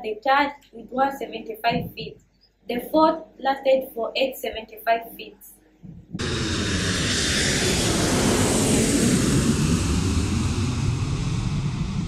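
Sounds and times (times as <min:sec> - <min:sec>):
airplane engine rumbling: 0:06.0 - 0:12.0.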